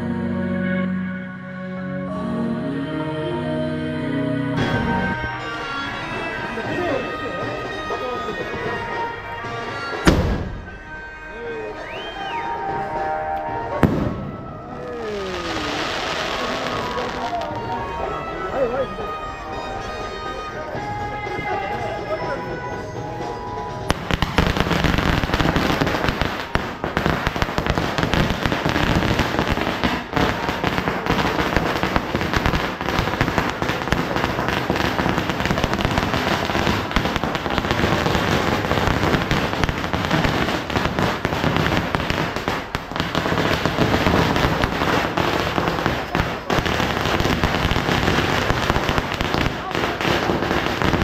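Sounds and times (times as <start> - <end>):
firecrackers rattling: 13.7 - 17.9, 23.9 - 51.0.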